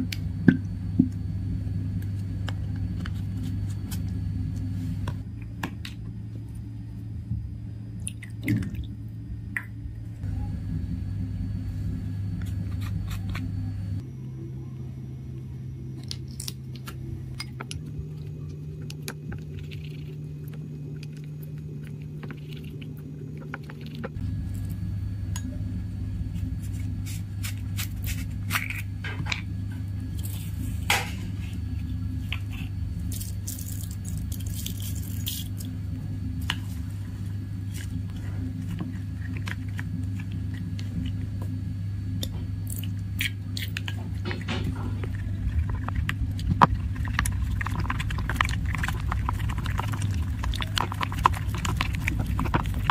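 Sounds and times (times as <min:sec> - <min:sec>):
steady low hum: 0:00.0 - 0:52.9
plastic spoon stirring slime: 0:45.0 - 0:52.9.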